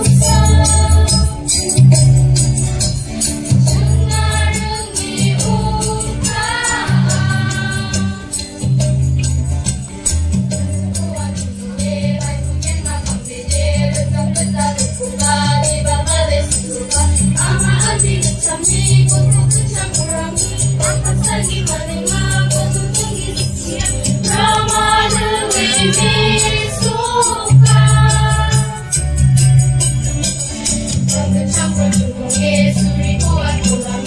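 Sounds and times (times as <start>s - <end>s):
amplified bass line: 0.0s - 16.5s, 17.1s - 34.0s
shaker rhythm: 0.0s - 34.0s
girls choir singing: 3.8s - 8.4s, 21.3s - 28.9s.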